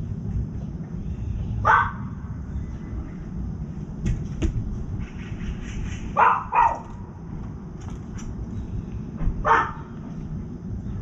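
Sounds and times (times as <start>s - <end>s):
steady low rumble: 0.0s - 11.0s
dog barking: 1.6s - 2.1s, 6.2s - 6.9s, 9.4s - 9.9s.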